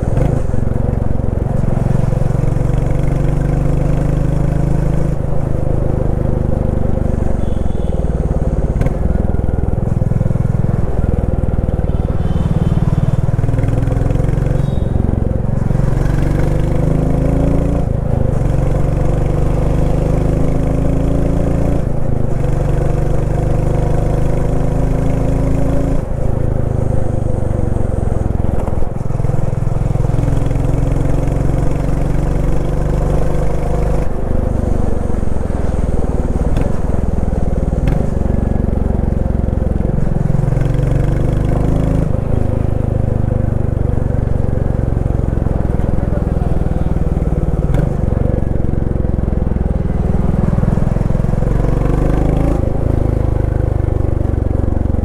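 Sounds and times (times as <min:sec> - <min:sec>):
motorcycle engine thumping: 0:36.2 - 0:38.6, 0:47.1 - 0:48.5.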